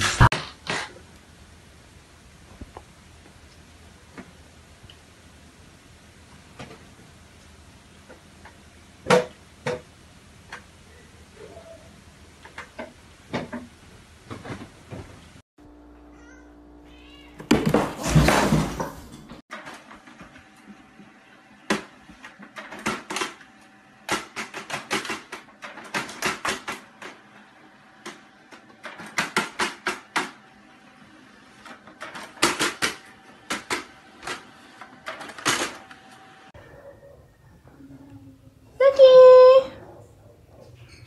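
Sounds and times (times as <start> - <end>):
printer feeding paper: 19.5 - 36.6.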